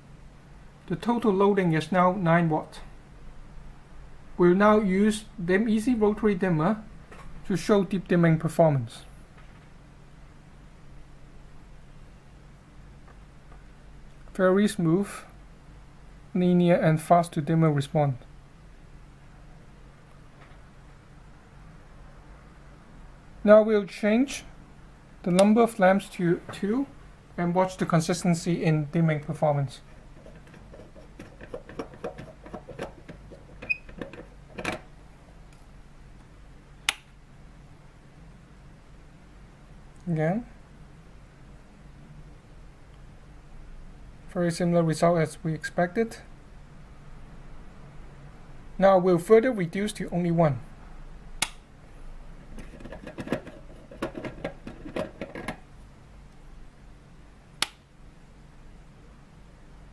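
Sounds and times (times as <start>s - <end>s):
switch click: 36.9s - 37.1s, 51.4s - 51.6s, 57.6s - 57.8s.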